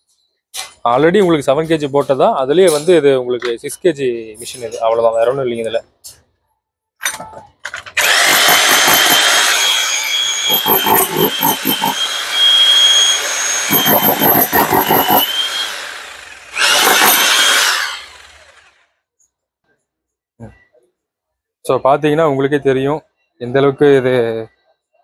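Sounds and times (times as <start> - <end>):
demolition hammer pounding stone: 8.1 - 9.2, 13.7 - 15.3.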